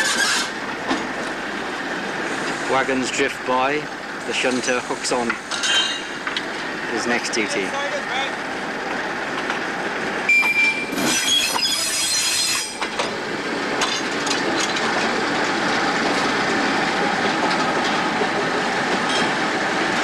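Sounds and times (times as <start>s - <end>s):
train wheels squealing: 10.3s - 12.9s
wagons rolling on track: 13.8s - 20.0s.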